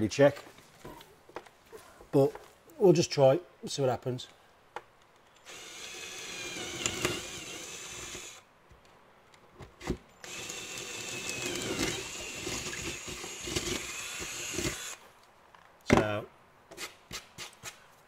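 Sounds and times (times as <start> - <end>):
power drill boring through metal: 5.5 - 8.4, 10.2 - 15.0.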